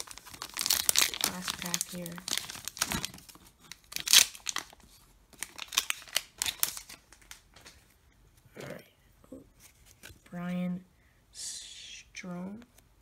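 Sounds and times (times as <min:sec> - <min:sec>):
wrapper tearing and crinkling: 0:00.0 - 0:07.4.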